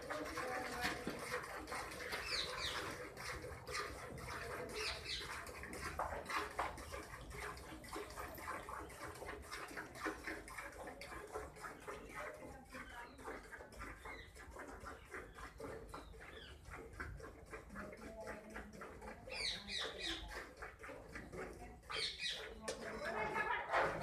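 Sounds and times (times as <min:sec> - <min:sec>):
milk squirting into steel pail: 0:00.0 - 0:23.0
small birds chirping: 0:02.2 - 0:02.9, 0:04.7 - 0:05.4, 0:13.9 - 0:16.7, 0:19.2 - 0:20.3, 0:21.9 - 0:23.3.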